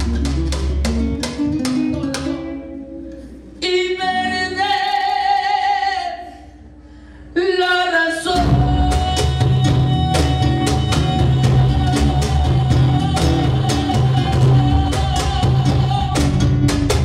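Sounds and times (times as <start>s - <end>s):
cajon strikes: 0.0s - 2.6s, 8.4s - 17.0s
bass guitar: 0.0s - 3.6s, 8.4s - 17.0s
guitar: 0.0s - 6.4s, 8.3s - 17.0s.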